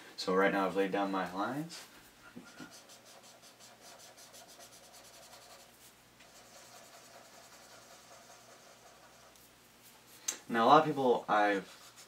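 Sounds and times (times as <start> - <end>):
blending stump rubbing paper: 2.4 - 10.1.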